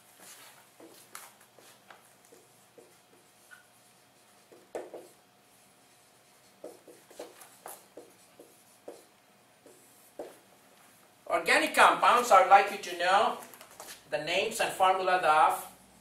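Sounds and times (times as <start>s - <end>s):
marker writing on whiteboard: 0.7s - 10.4s.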